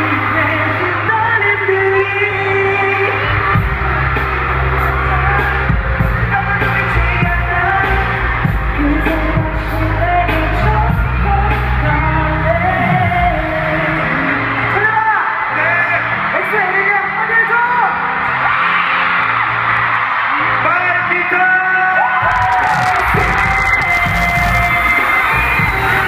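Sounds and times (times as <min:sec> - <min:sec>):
person singing: 0:00.0 - 0:14.6, 0:22.2 - 0:26.0
heavy bass beat: 0:22.2 - 0:26.0.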